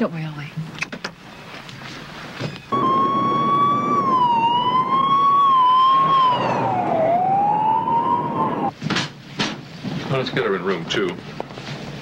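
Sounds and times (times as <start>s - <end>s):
road noise: 1.6s - 8.8s
ambulance siren wailing: 2.7s - 8.7s.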